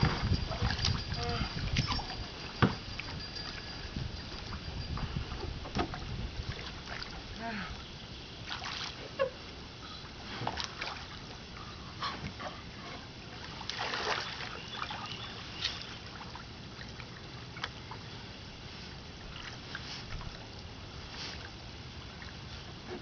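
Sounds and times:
hands splashing in shallow water: 13.6s - 15.0s.

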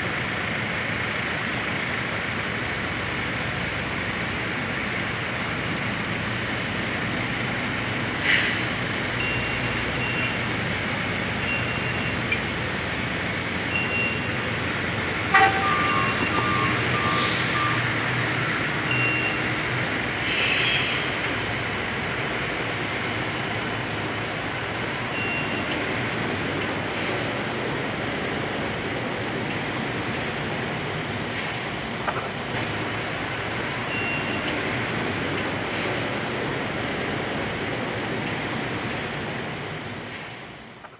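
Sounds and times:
diesel truck engine running: 0.0s - 40.8s
air hiss: 8.2s - 9.0s, 20.2s - 21.6s
warning beeps: 15.4s - 17.9s, 18.9s - 19.5s.

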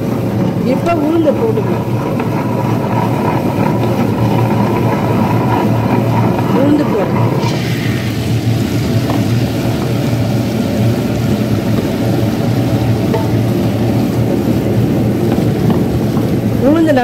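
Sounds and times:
stone grinder grinding: 0.0s - 16.5s
low motor hum: 0.0s - 17.0s.

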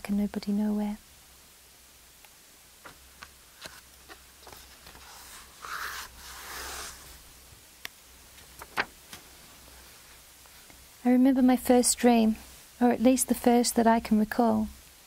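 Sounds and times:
paper rustling: 2.8s - 7.2s, 8.4s - 9.2s.

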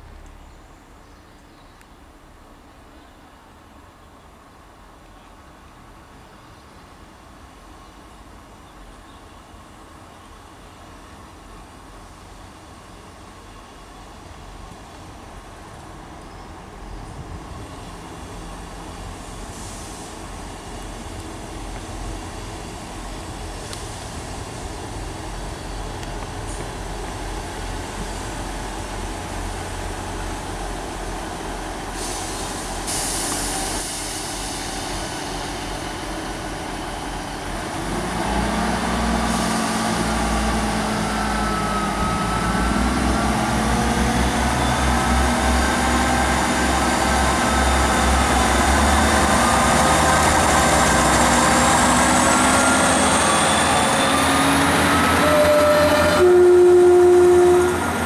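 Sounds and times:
diesel train idling: 9.5s - 58.0s
diesel engines revving: 19.0s - 58.0s
short hiss: 31.9s - 35.2s
rising whine: 39.3s - 58.0s.

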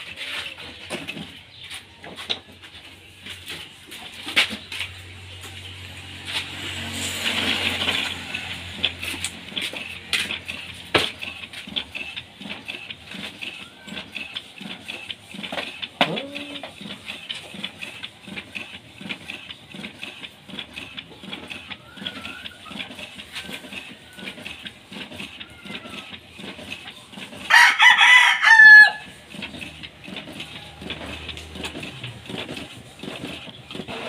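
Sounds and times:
inkjet printer printing: 0.0s - 34.0s
rooster crowing: 27.5s - 29.2s.

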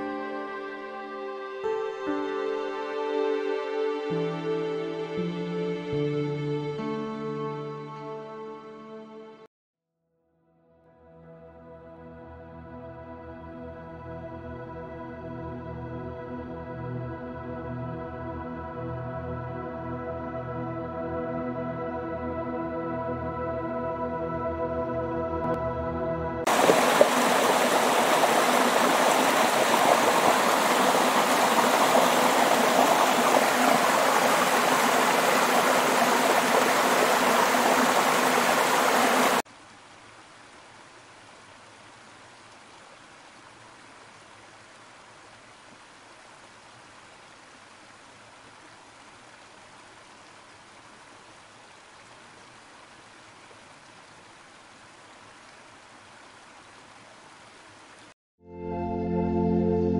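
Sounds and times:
waterfall splashing rush: 26.5s - 39.4s.

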